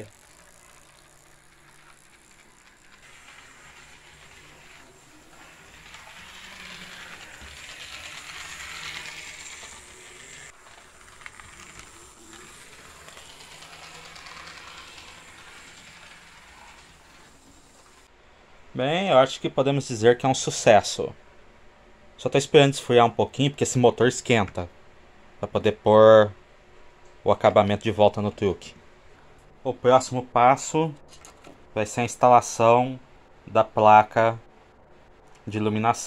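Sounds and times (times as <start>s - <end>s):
model train motor whirring: 0.0s - 18.1s.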